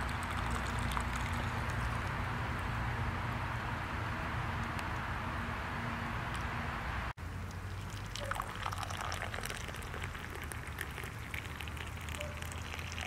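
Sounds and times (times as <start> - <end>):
tea pouring into glass: 0.0 - 1.7, 7.8 - 13.0.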